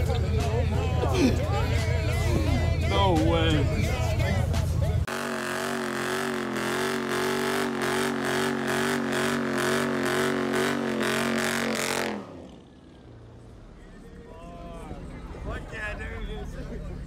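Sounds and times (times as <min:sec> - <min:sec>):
car engine revving high: 0:05.1 - 0:12.7.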